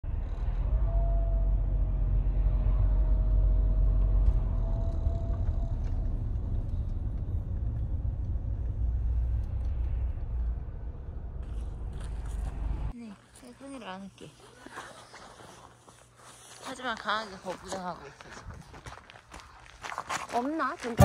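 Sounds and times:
low rumble: 0.0s - 13.0s.

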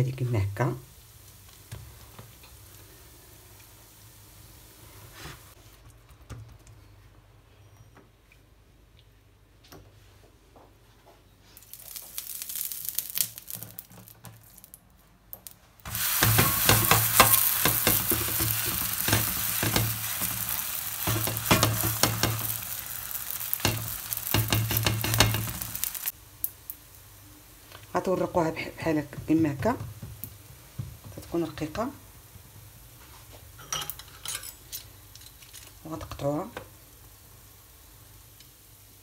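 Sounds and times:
dough sizzling in oil: 0.0s - 5.7s, 11.4s - 39.0s
faint hiss: 0.0s - 5.7s, 34.6s - 39.0s.

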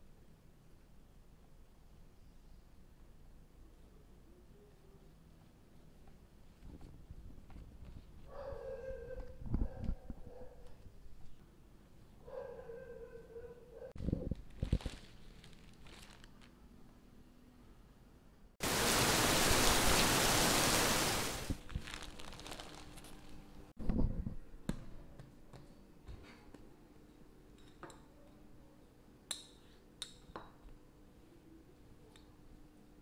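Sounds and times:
cling wrap rustling: 14.0s - 16.6s, 21.3s - 23.7s.

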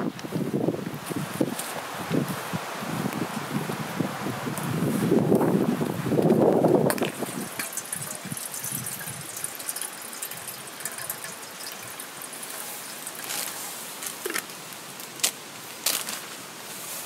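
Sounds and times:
water trickling and dripping: 5.8s - 15.2s.

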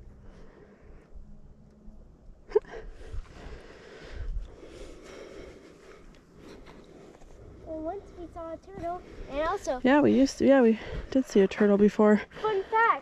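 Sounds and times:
person breathing and sniffing: 2.9s - 9.6s, 12.4s - 13.0s.

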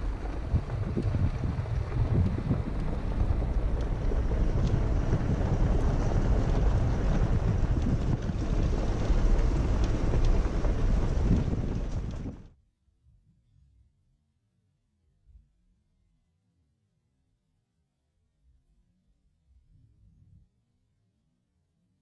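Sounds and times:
wind buffeting microphone: 0.0s - 12.5s
low road rumble: 0.0s - 12.6s.

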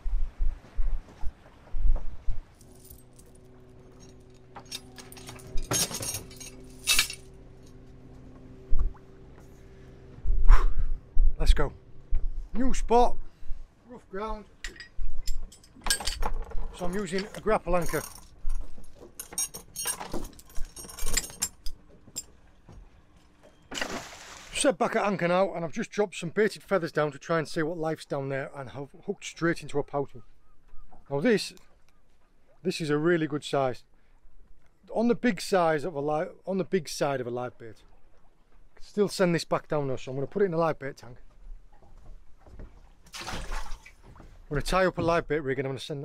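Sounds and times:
steady low hum: 0.0s - 16.0s
anchor chain rattling: 2.5s - 8.0s, 14.6s - 22.4s
low thuds: 8.2s - 13.3s.

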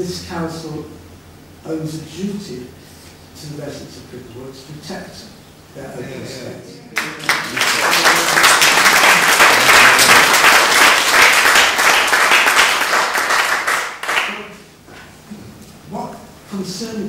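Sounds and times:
audience applauding: 6.9s - 14.5s.

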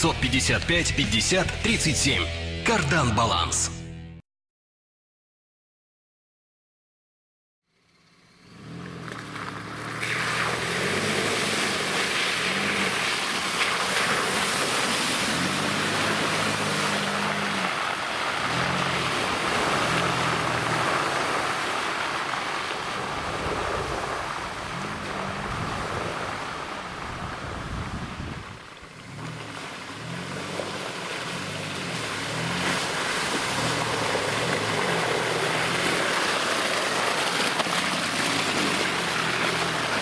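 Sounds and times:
engine running under load: 8.0s - 27.5s, 28.8s - 40.0s
tyres churning and spraying mud: 8.5s - 40.0s.

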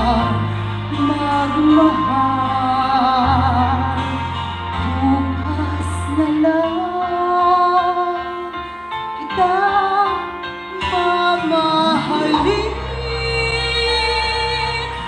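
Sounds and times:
deep bass: 0.0s - 7.3s, 10.9s - 15.0s
instrumental accompaniment: 0.0s - 15.0s
woman singing: 0.0s - 15.0s.

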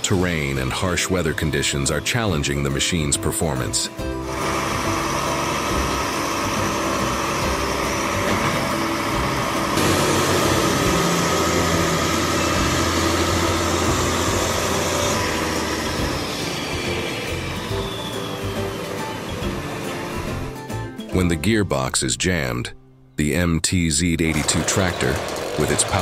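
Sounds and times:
tractor diesel engines under load: 3.6s - 20.5s, 24.2s - 26.0s.

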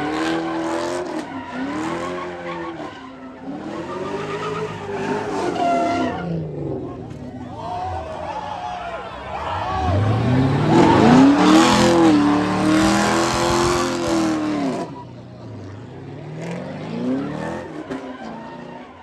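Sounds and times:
car engine revving: 9.4s - 18.4s.

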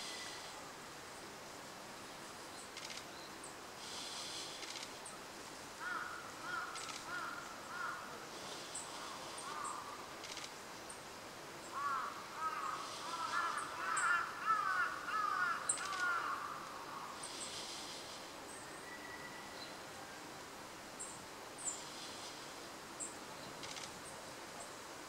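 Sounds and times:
faint high ticks: 2.6s - 3.2s, 4.5s - 5.1s, 6.6s - 7.4s, 9.4s - 10.6s, 15.7s - 16.8s, 23.6s - 24.1s
wild birds calling: 5.8s - 11.0s, 11.6s - 19.8s, 21.0s - 24.2s.

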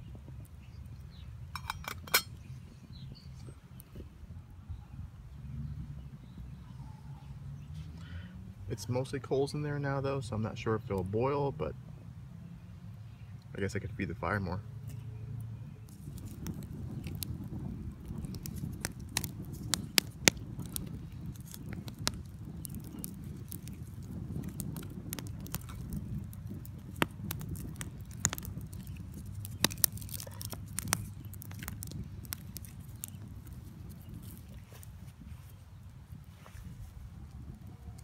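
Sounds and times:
fire popping: 0.0s - 4.1s, 13.4s - 38.0s
wood fire crackling: 12.8s - 38.0s.

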